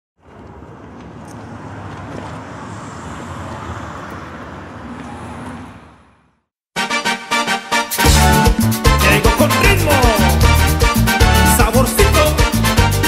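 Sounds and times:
car engine and road noise: 0.2 - 6.5
music: 6.8 - 13.0.

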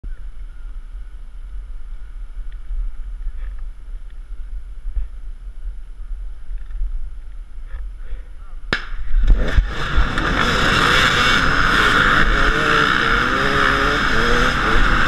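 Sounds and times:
wind noise on microphone: 0.0 - 15.0
dirt bike engines idling: 9.4 - 15.0.

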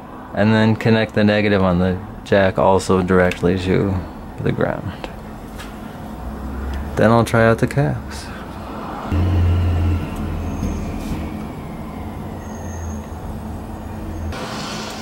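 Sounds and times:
low steady rumble: 5.2 - 14.4
faint falling whine: 9.1 - 14.4.

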